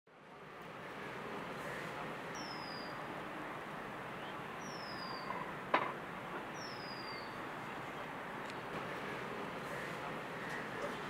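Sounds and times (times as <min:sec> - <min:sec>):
outdoor background noise: 0:00.1 - 0:11.0.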